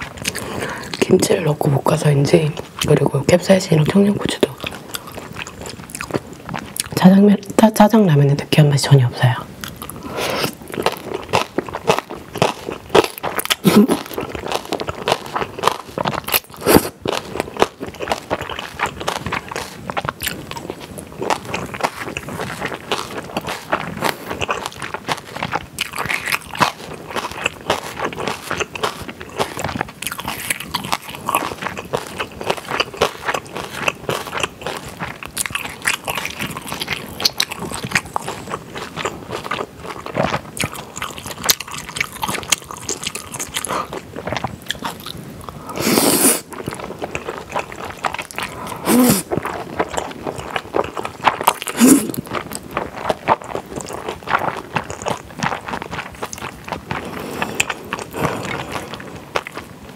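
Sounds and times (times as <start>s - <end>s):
close chewing mouth sounds: 0.0s - 7.7s, 9.5s - 59.9s
noodle slurp: 15.9s - 17.0s, 45.5s - 59.2s.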